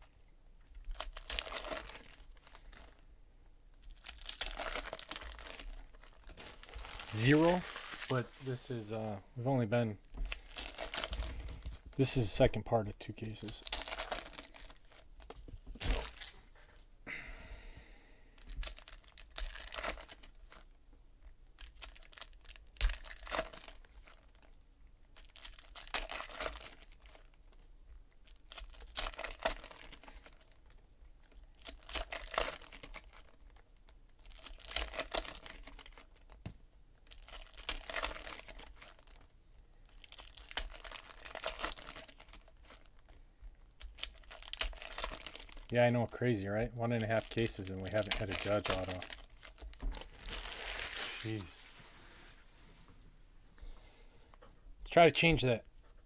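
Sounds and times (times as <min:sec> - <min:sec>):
foil wrappers crinkling and tearing: 0:00.8 - 0:03.0, 0:03.8 - 0:16.8, 0:18.4 - 0:20.8, 0:21.5 - 0:51.8
cards being handled: 0:04.4 - 0:08.9, 0:47.3 - 0:52.3.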